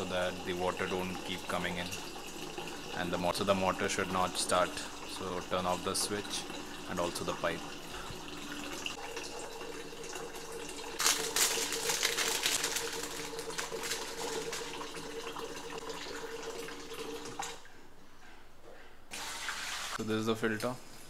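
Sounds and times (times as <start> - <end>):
water running into steel pot: 0.0 - 17.6.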